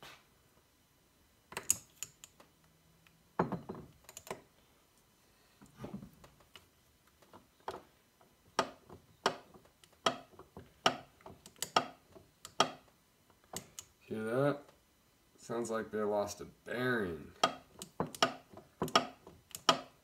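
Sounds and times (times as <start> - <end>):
man talking: 14.0 - 14.7, 15.4 - 17.4.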